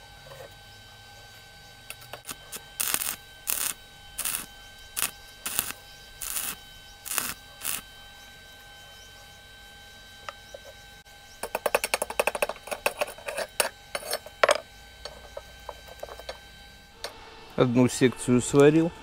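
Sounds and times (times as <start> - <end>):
welding arc bursts: 1.9 - 7.9.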